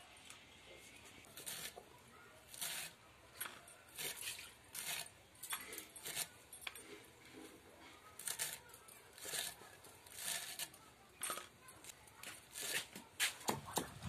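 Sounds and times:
blade slicing greens: 1.3 - 1.8, 2.5 - 3.0, 12.5 - 13.8.

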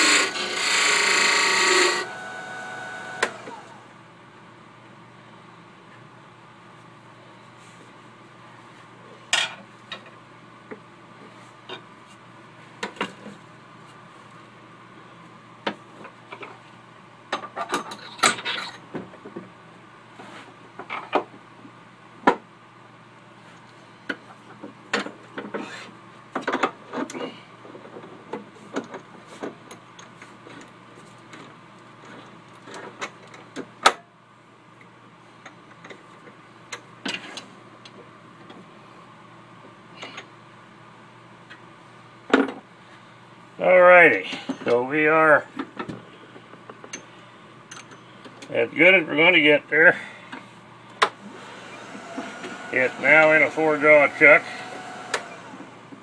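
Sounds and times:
steady low hum: 37.6 - 56.0.

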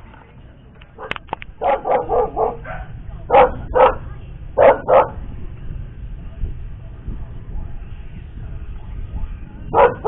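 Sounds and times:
dog barking: 1.0 - 5.2, 9.1 - 10.0.

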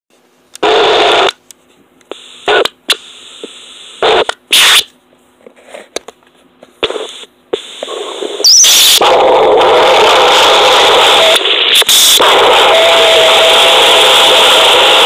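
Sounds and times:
faint steady hum: 0.2 - 15.0
harsh distorted noise bursts: 0.6 - 1.4, 2.1 - 4.9, 6.8 - 15.0.

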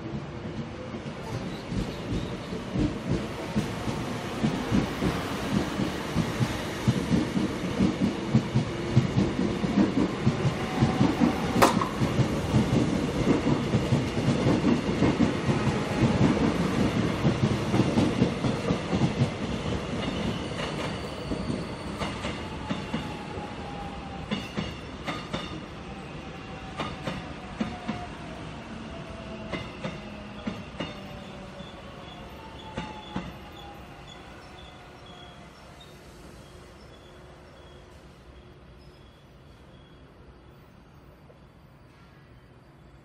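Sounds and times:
train wheels clicking over rail joints: 1.6 - 23.1, 24.3 - 25.6.

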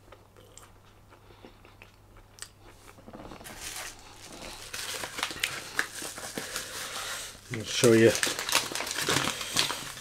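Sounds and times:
faint chewing clicks: 0.1 - 3.4
packaging rustling: 3.1 - 10.0.

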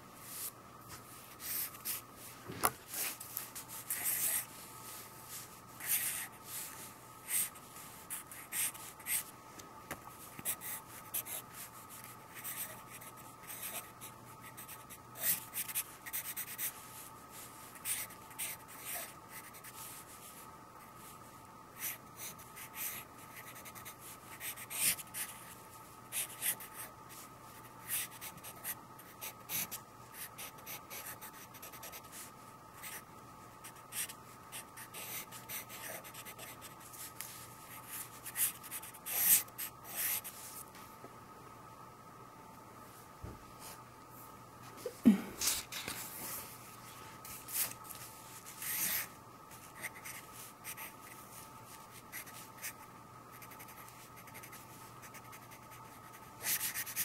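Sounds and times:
pencil scratching on paper: 53.4 - 57.0.

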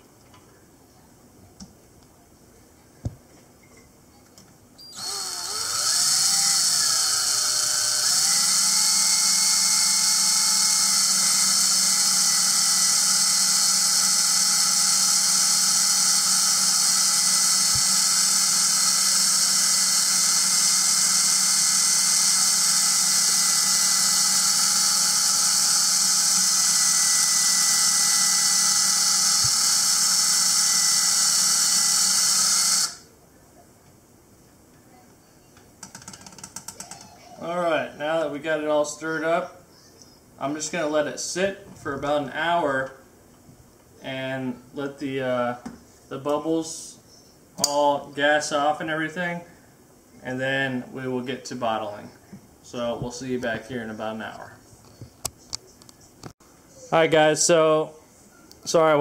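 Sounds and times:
cordless drill spinning: 4.8 - 33.1.

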